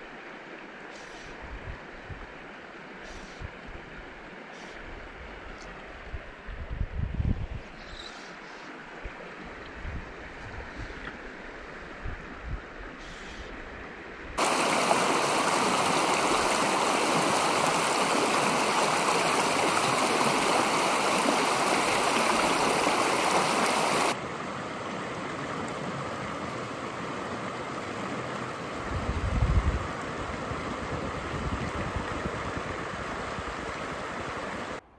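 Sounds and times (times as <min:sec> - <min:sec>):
shallow stream babbling: 0:00.0 - 0:06.4, 0:08.2 - 0:34.8
river water rushing over rocks: 0:14.4 - 0:28.9, 0:29.8 - 0:34.8.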